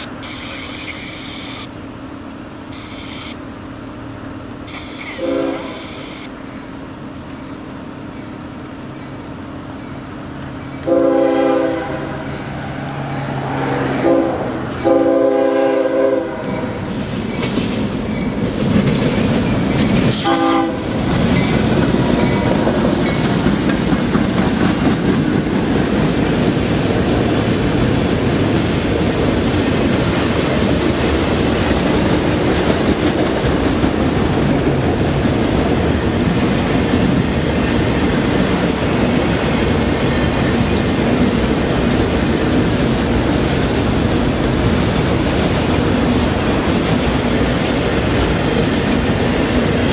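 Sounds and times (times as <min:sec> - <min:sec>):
train wheel and rail noise: 0:00.0 - 0:49.9
train horn blast: 0:04.7 - 0:06.3, 0:10.8 - 0:12.5, 0:13.6 - 0:16.8, 0:20.1 - 0:21.1.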